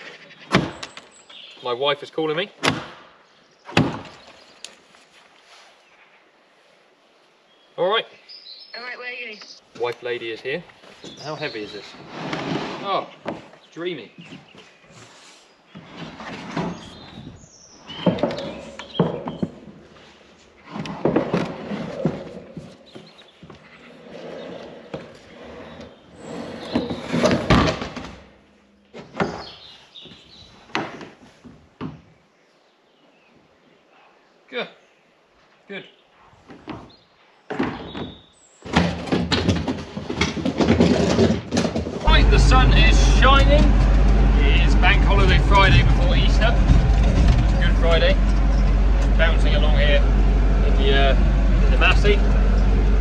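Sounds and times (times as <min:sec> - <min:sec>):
plastic bin scraping: 0:11.0 - 0:13.5, 0:15.8 - 0:23.2, 0:24.0 - 0:28.2, 0:38.7 - 0:53.0
bin knocking and dropping: 0:26.7 - 0:28.2, 0:37.5 - 0:49.2.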